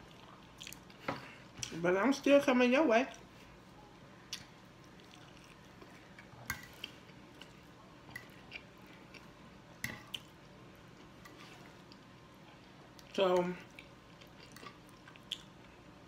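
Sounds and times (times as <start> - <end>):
chewing: 0.0 - 1.7, 4.3 - 10.4, 11.0 - 15.8.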